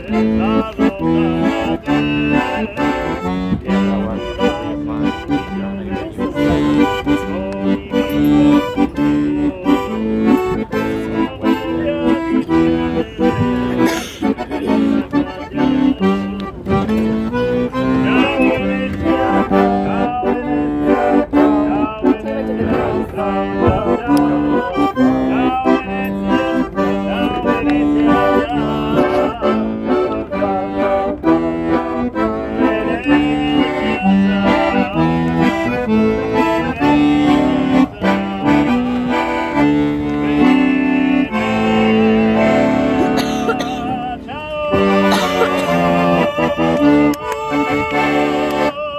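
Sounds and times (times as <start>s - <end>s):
accordion playing lively tune: 0.0s - 48.9s.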